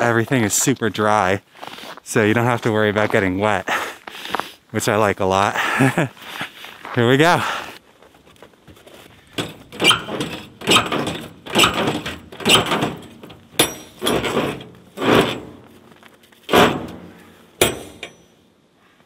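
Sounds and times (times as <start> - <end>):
footsteps crunching in snow: 0.4 - 4.7, 6.0 - 9.4, 15.6 - 16.5.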